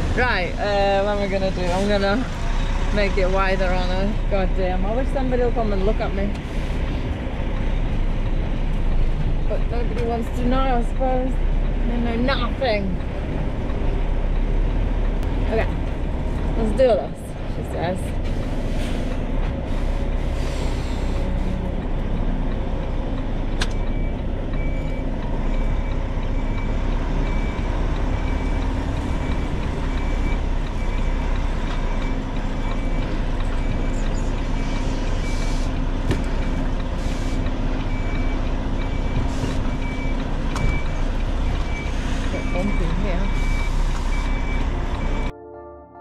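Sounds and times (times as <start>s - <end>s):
diesel engine idling: 0.0s - 45.3s
reversing alarm beeping: 23.8s - 45.3s.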